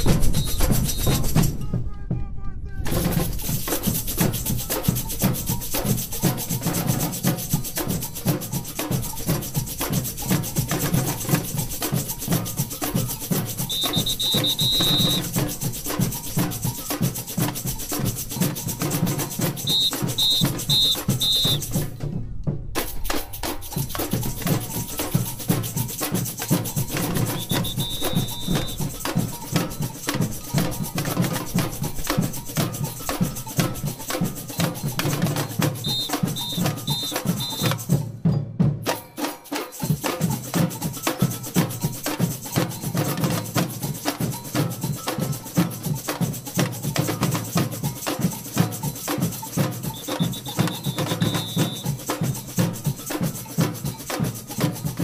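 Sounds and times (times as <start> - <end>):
high whistle blasts: 0.0 - 1.4, 13.6 - 15.4, 19.6 - 21.9, 27.2 - 29.1, 35.8 - 37.9, 49.9 - 52.1
samba drums and bells: 0.0 - 55.0.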